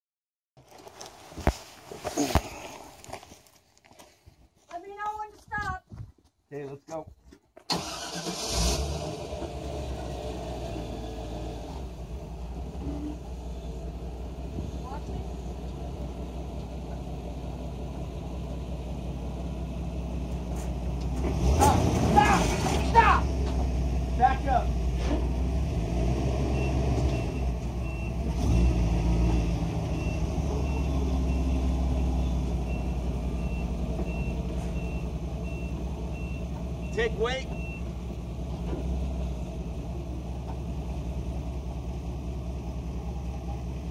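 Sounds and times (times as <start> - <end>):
vehicle engine starting and running: 7.7 - 43.9.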